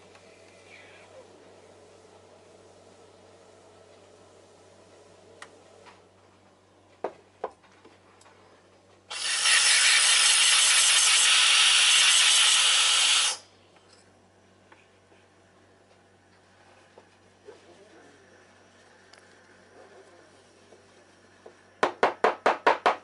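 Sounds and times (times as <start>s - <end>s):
steam wand hissing: 9.1s - 13.4s.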